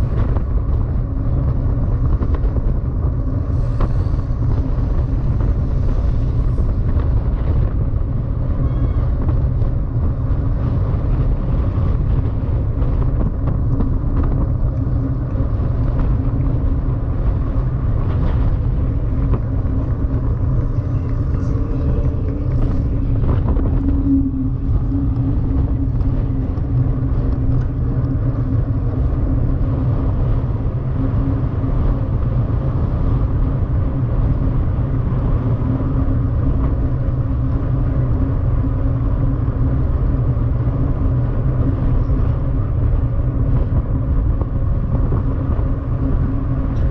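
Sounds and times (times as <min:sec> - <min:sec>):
faint steady hum: 0:00.0 - 0:46.9
wind rumble on microphone: 0:00.0 - 0:46.9
rolling noise: 0:05.0 - 0:33.2.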